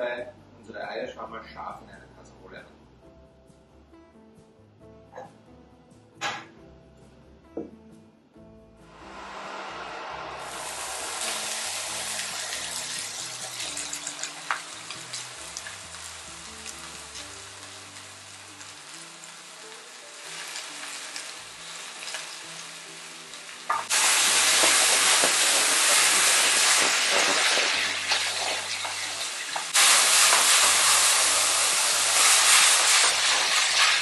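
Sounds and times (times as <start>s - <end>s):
mushrooms sizzling in a pan: 10.4s - 34.0s.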